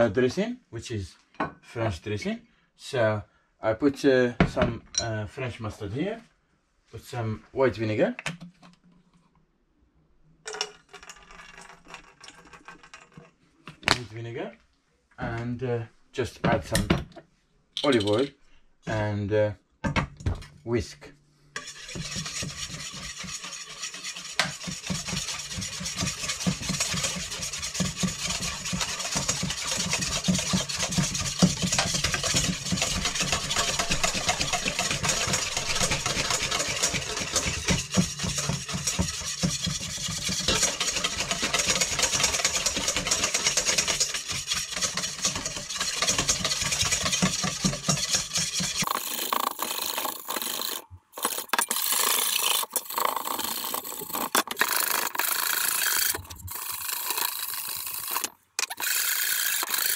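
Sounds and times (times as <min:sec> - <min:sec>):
whisk scraping metal bowl: 0:21.6 - 0:59.9.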